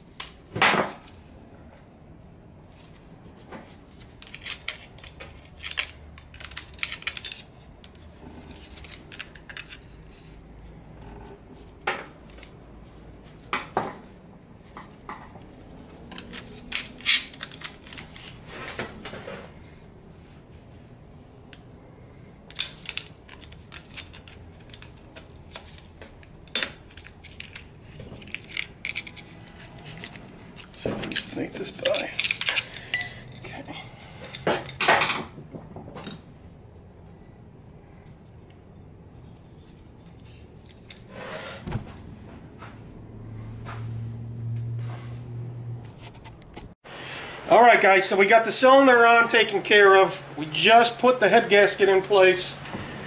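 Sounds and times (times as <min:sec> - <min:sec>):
metallic clinks and scrapes: 0:22.5 - 0:35.1.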